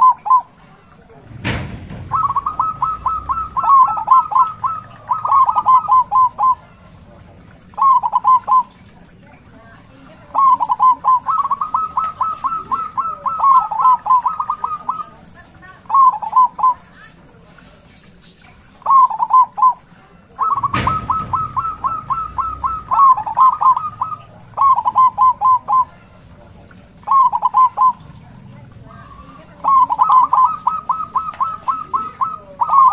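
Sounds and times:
dove cooing: 0:00.0 - 0:32.9
sharp knock: 0:01.3 - 0:02.9, 0:20.6 - 0:23.3.

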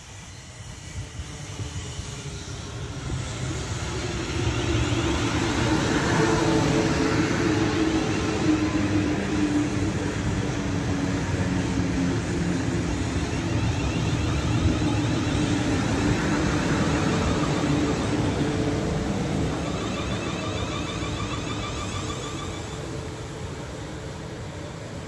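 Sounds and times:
train wheels rumbling on rails: 0:00.0 - 0:25.0
traction motor hum: 0:09.9 - 0:23.4.

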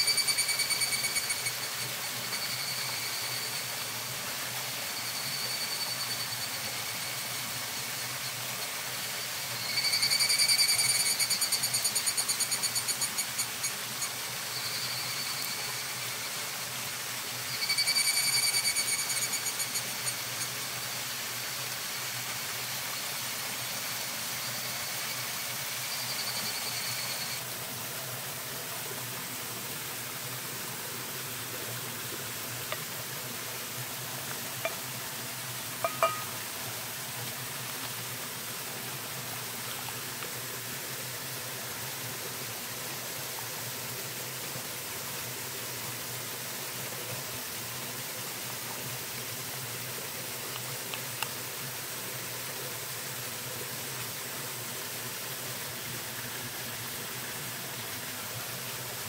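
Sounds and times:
animal high-pitched pulsed trills: 0:00.0 - 0:16.6, 0:17.3 - 0:21.2, 0:24.4 - 0:27.4, 0:34.6 - 0:34.9, 0:35.8 - 0:36.4
steady hiss: 0:00.0 - 0:59.0.

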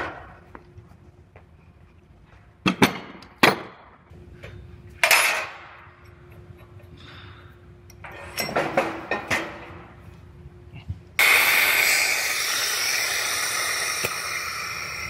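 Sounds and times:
compressed air hissing: 0:11.2 - 0:15.0.

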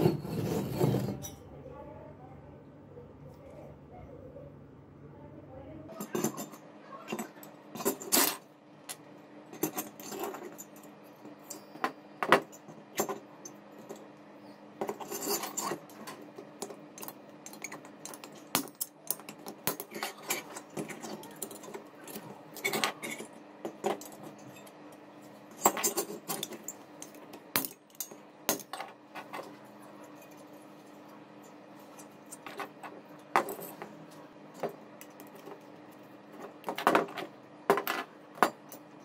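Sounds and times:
metal fins clinking and scraping: 0:00.0 - 0:01.4, 0:05.9 - 0:08.5, 0:09.5 - 0:14.1, 0:14.8 - 0:24.8, 0:25.5 - 0:35.7.

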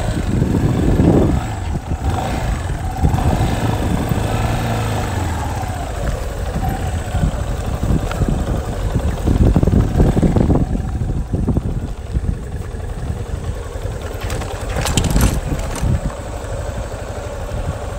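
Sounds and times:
off-road vehicle engine running: 0:00.0 - 0:17.9
rattle: 0:11.4 - 0:17.9
vehicle jolting over rough ground: 0:12.2 - 0:16.7.

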